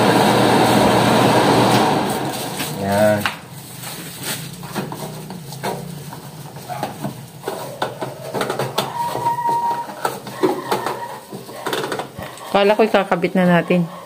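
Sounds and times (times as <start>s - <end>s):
range hood blower humming: 0.0s - 14.0s
plastic bag rustling: 2.0s - 12.2s.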